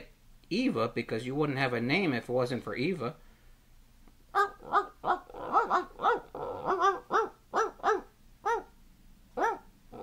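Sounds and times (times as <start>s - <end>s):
small dog yapping: 4.3s - 8.8s, 9.4s - 10.0s.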